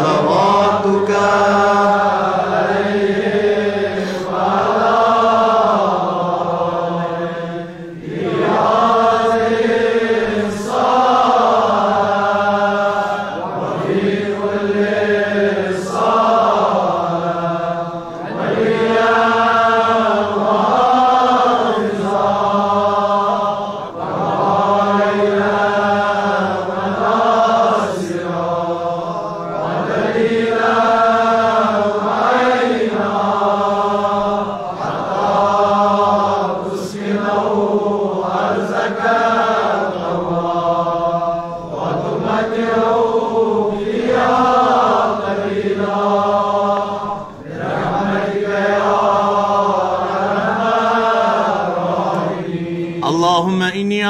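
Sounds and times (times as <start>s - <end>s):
man chanting melodically: 0.0s - 2.1s, 52.9s - 54.0s.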